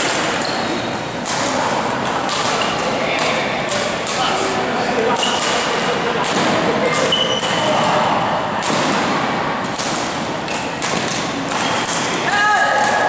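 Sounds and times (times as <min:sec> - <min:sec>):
sneakers squeaking on floor: 0:00.0 - 0:01.2, 0:05.1 - 0:05.8, 0:06.8 - 0:08.2, 0:10.0 - 0:12.2
rackets hitting shuttlecock: 0:00.0 - 0:13.0.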